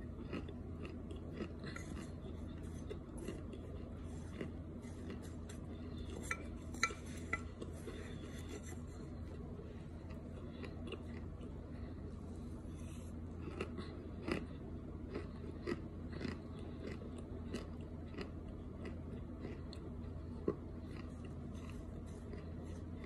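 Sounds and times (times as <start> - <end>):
metal spoon scraping glass dish: 6.1 - 7.6.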